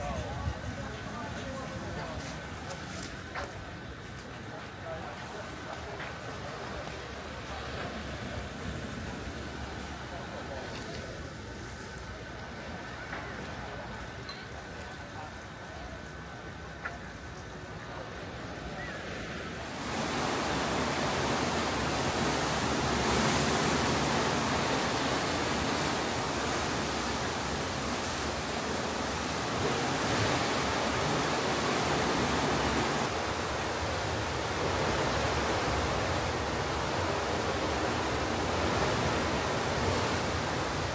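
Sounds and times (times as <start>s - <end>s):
sea rushing: 0.0s - 40.9s.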